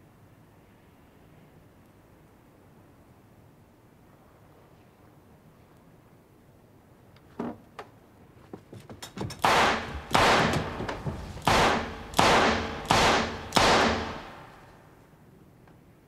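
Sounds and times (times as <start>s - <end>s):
light clicks and knocks: 7.2s - 11.6s
gunshots indoors: 9.4s - 14.8s.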